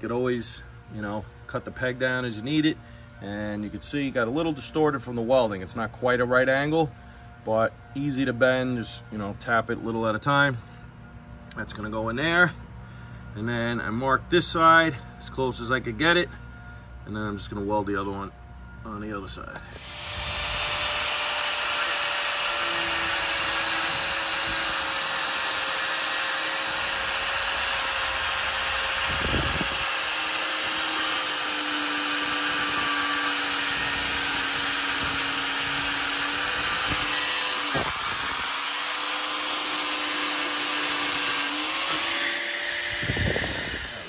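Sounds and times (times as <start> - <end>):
angle grinder cutting steel: 19.7 - 44.0.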